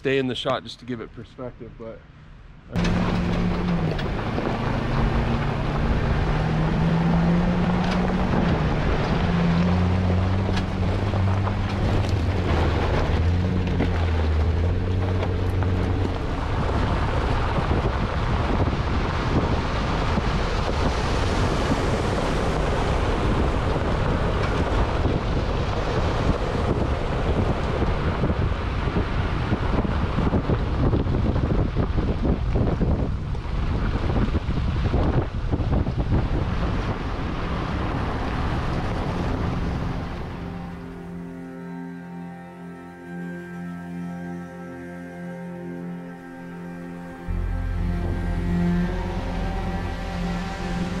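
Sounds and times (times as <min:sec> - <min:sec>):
vehicle engine running: 0:02.7 - 0:51.0
wind buffeting microphone: 0:02.8 - 0:41.2
rushing river water: 0:33.2 - 0:41.4.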